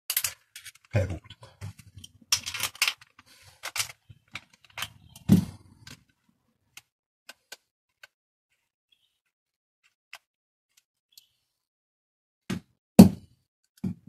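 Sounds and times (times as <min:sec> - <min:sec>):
clicks and clatter of tools: 0:00.1 - 0:01.0, 0:01.6 - 0:06.2.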